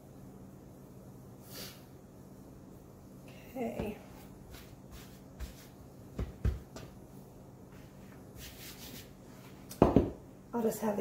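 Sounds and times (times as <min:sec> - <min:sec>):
soft knocks on countertop: 0:09.8 - 0:10.2.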